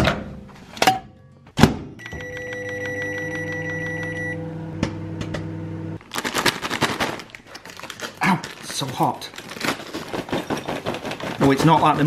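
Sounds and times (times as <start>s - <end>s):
microwave humming: 1.6s - 6.0s.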